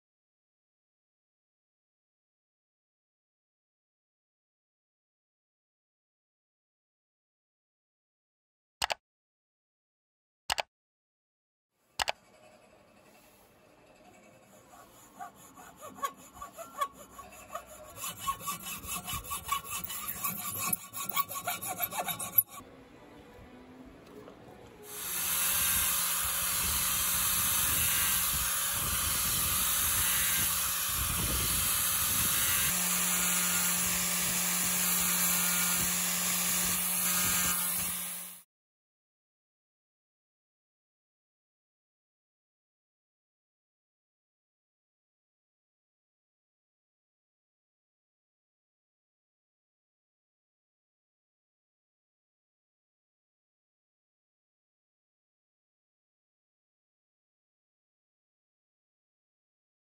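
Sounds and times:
hand tool scraping wood: 12.4 - 22.6
sanding disc grinding wood: 12.4 - 22.6, 24.9 - 38.4.

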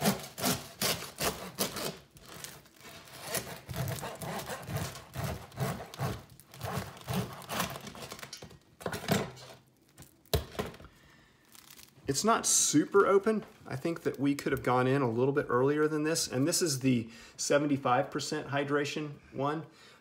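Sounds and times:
bread knife sawing crust: 0.0 - 8.1.

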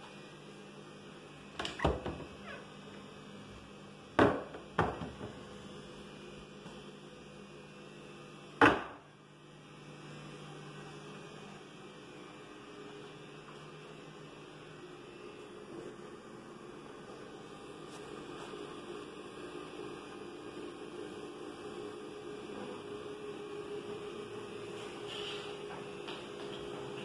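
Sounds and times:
cabinet doors knocking shut: 4.2 - 5.4.

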